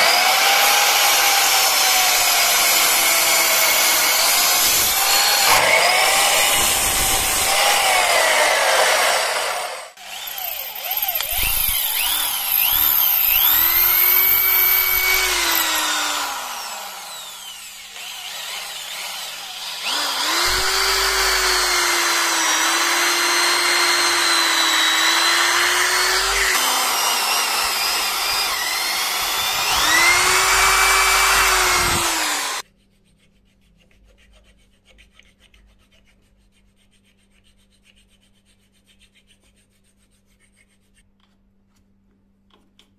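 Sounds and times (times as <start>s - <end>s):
power drill boring into wood: 0.0s - 32.6s
hand file rubbing on wood: 29.5s - 41.1s.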